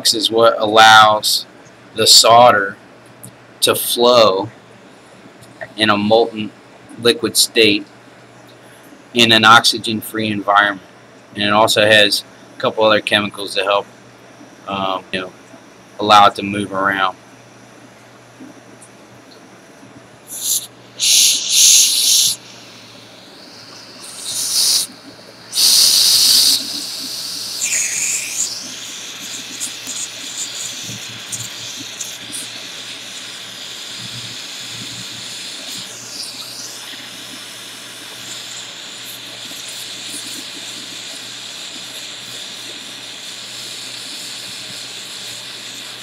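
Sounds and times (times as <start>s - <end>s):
soldering torch hissing: 20.2s - 46.0s.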